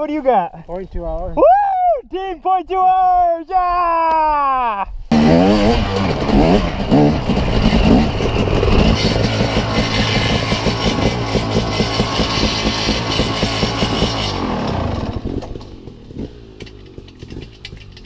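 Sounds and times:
dirt bike engine revving and idling: 5.1s - 18.0s.

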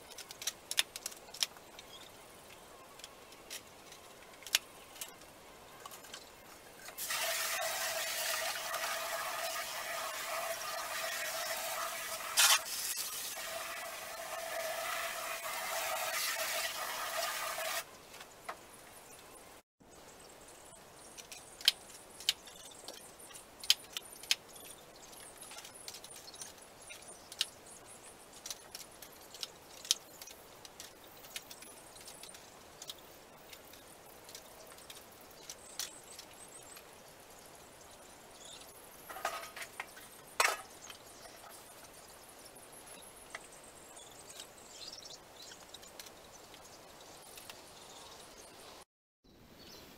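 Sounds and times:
water spray hissing: 7.0s - 17.9s.

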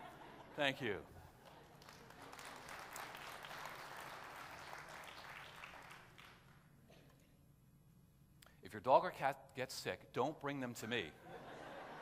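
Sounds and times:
congregation applauding: 1.4s - 6.7s.

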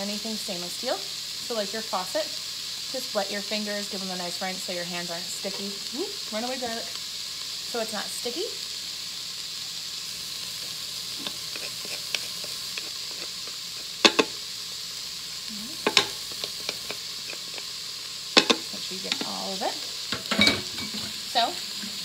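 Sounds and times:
vegetables sizzling in oil: 0.0s - 22.0s
wooden spoon stirring: 11.2s - 14.3s
utensils knocking against pot: 14.0s - 14.4s, 15.8s - 17.0s, 18.4s - 19.4s, 20.1s - 21.2s.

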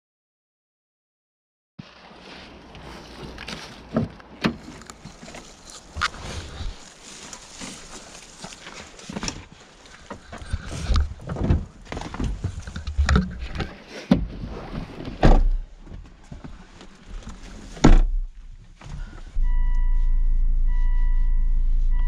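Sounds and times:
knocks and rustling in car: 10.1s - 16.6s, 17.2s - 19.1s.

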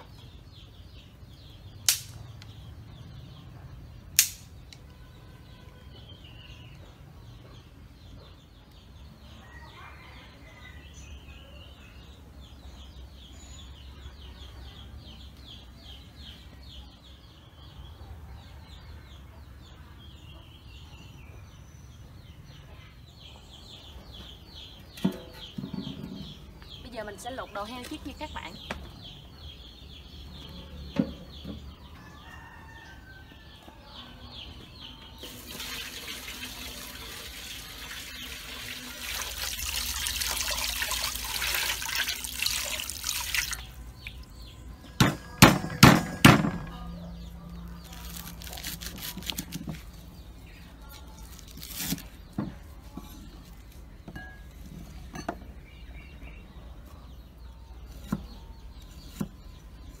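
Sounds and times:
lighter clicks and knocks: 1.9s - 2.2s
water running from a tap: 35.2s - 43.8s
loud knocks: 45.0s - 46.9s.

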